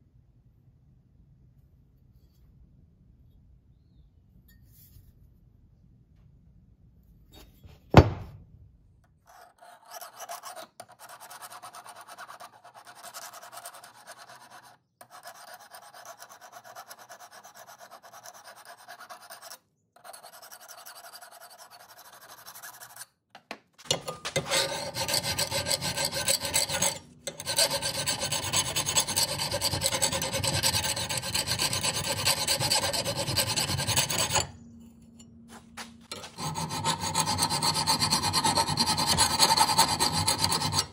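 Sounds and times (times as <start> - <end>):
file rasping on steel: 9.2 - 23.2, 23.9 - 34.6, 36.1 - 40.9.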